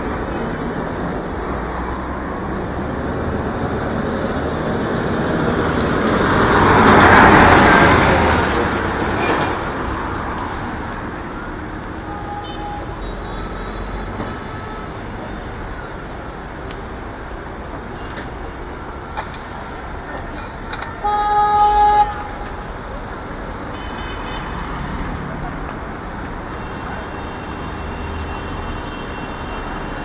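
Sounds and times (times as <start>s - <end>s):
road traffic noise: 0.0s - 30.0s
vehicle horn blast: 21.0s - 22.5s.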